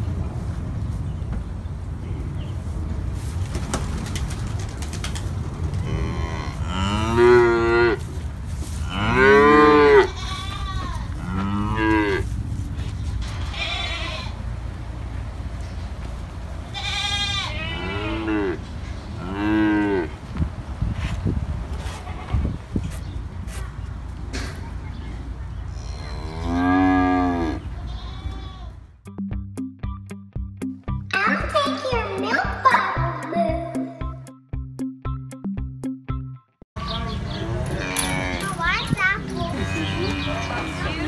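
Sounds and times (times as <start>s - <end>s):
calves mooing: 5.8s - 8.0s, 8.8s - 12.3s, 13.4s - 14.3s, 16.8s - 20.2s, 25.7s - 28.8s, 37.3s - 38.6s, 39.5s - 41.0s.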